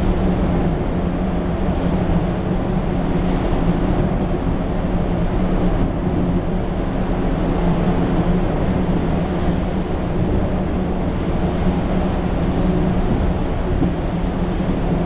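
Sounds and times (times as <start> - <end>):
small waves rumbling: 0.0 - 15.0.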